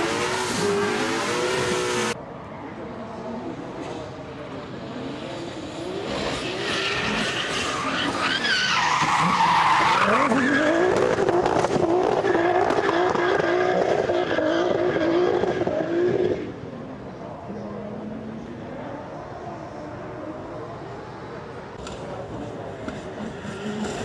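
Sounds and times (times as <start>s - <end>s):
car engine revving hard: 0.0s - 2.2s
tyres squealing and skidding: 5.8s - 16.0s.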